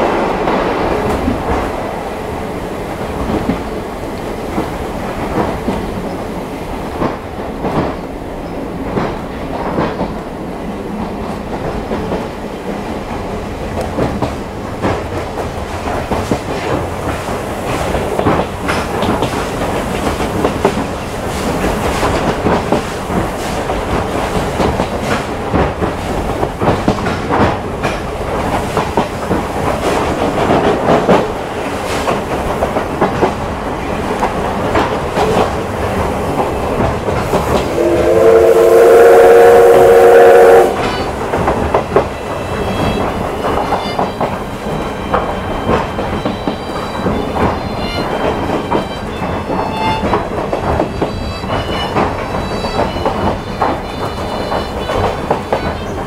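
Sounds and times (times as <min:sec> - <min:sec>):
train wheels clattering over rail joints: 0:03.0 - 0:56.0
steam locomotive whistle: 0:37.6 - 0:41.3.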